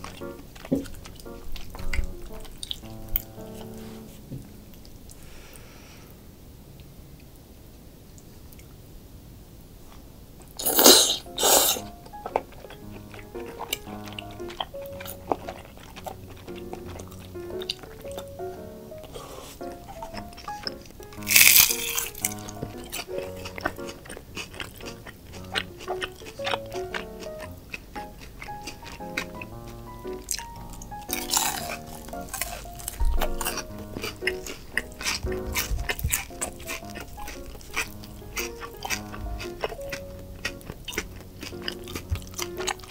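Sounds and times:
background music: 0:00.0 - 0:05.1, 0:10.6 - 0:42.9
wet chewing and mouth clicks: 0:00.0 - 0:05.2, 0:09.9 - 0:42.9
loud noodle slurps: 0:10.6 - 0:11.9.

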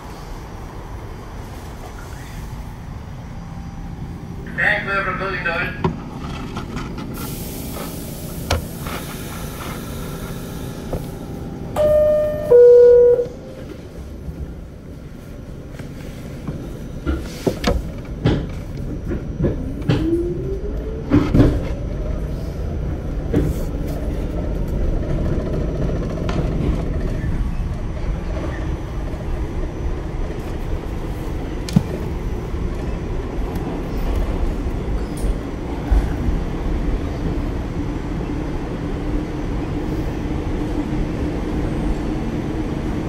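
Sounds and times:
subway train rumble: 0:00.0 - 0:43.0
two-note door chime: 0:11.8 - 0:13.4.

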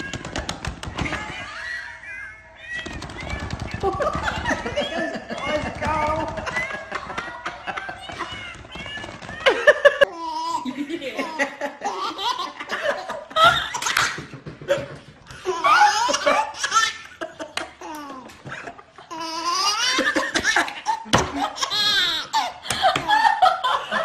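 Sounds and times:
baby laughing: 0:01.0 - 0:24.0
man laughing heartily: 0:22.4 - 0:24.0.

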